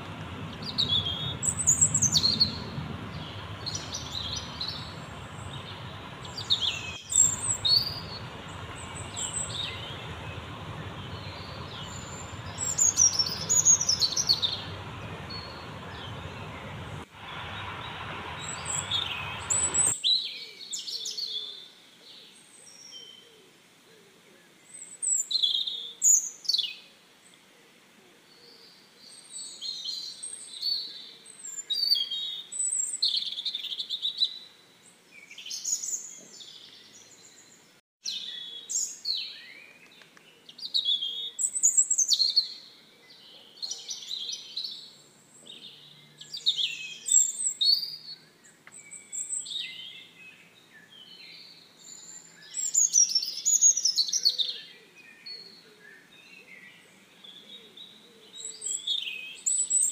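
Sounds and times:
nestlings begging chirps: 0.0s - 19.9s.

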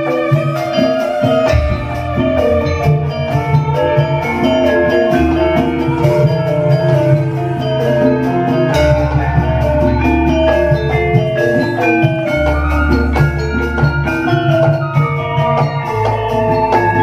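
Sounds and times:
gamelan metallophones melody: 0.0s - 17.0s
deep bass notes: 1.4s - 11.7s.

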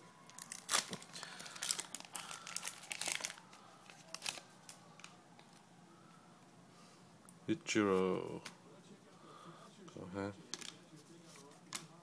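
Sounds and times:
wrapper crinkling and tearing: 0.3s - 5.2s.

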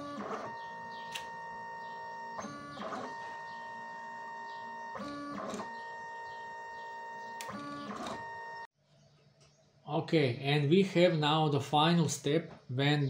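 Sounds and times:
print head whirr: 0.0s - 8.7s
stepper motors whining: 0.0s - 8.7s.

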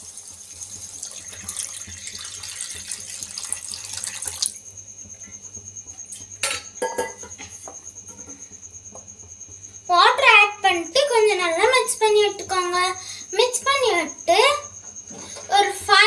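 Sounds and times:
water pouring into a frying pan: 0.0s - 4.6s.

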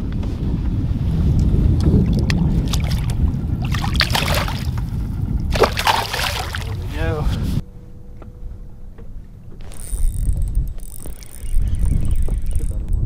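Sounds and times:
wind rumble on microphone: 0.0s - 13.0s
fish splashing into water: 2.0s - 6.8s.

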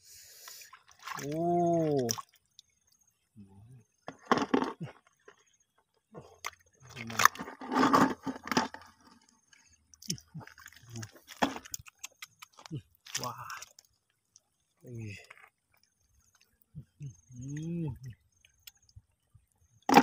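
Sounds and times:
hands splashing in shallow water: 0.9s - 2.4s
gravel clattering: 4.1s - 5.9s.

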